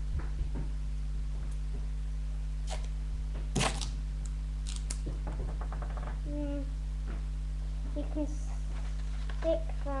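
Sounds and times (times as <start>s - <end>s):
low electrical hum: 0.0s - 10.0s.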